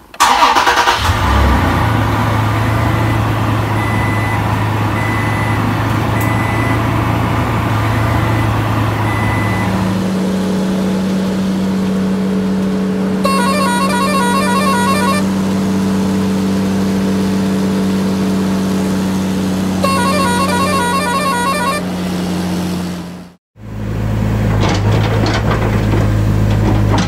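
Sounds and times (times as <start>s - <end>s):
truck engine running: 0.2s - 27.0s
quick tune of stepped notes: 13.3s - 15.3s, 19.8s - 21.9s.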